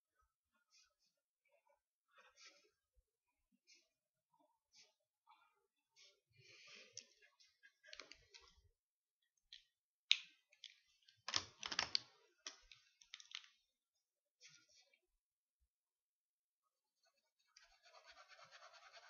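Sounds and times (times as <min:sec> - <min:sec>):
pens clicking and tapping: 0:09.5 - 0:13.6.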